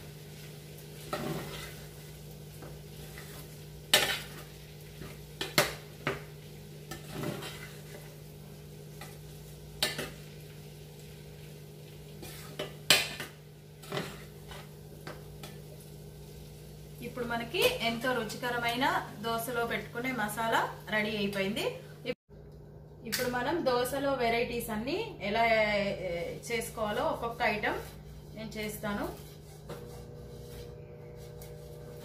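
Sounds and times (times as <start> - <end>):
metal spoon stirring in a pan: 0.4 - 15.9, 26.2 - 32.0
spoon clinking and scraping pan: 3.1 - 6.2.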